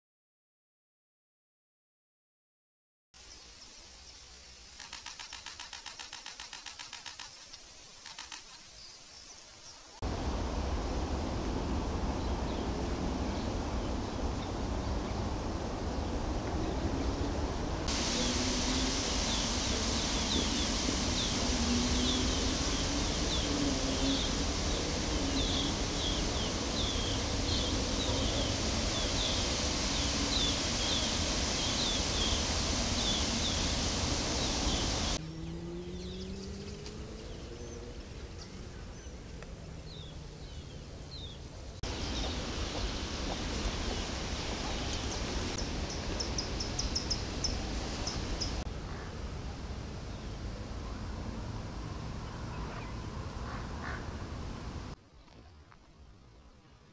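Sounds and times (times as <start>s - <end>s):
small birds chirping: 3.2s - 9.9s, 17.9s - 39.2s, 39.8s - 48.7s
background rush: 4.2s - 39.0s, 41.6s - 55.0s.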